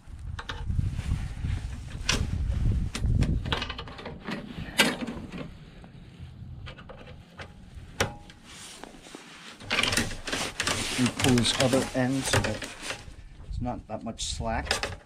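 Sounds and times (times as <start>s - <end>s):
cable clicks and rattles: 1.7s - 5.6s, 6.6s - 8.4s, 9.6s - 13.2s, 14.5s - 15.0s.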